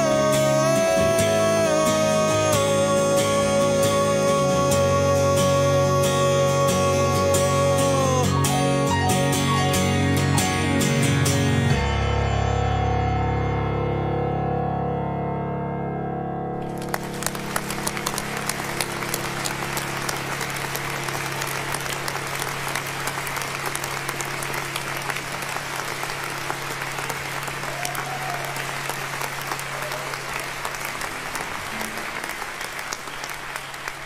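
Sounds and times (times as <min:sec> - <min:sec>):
sustained keyboard chord: 0:00.0 - 0:27.6
hands clapping: 0:16.7 - 0:34.0.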